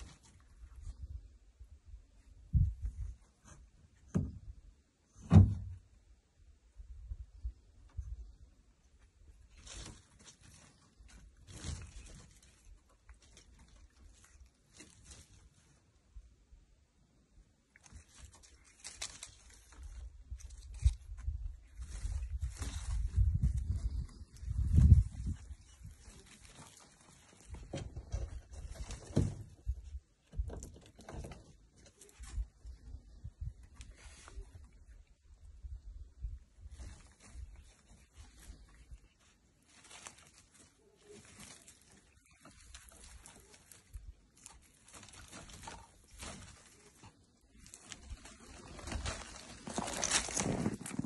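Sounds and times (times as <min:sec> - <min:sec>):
dry vine stems rustling: 0:00.0 - 0:01.3, 0:09.2 - 0:16.2, 0:17.6 - 0:51.0.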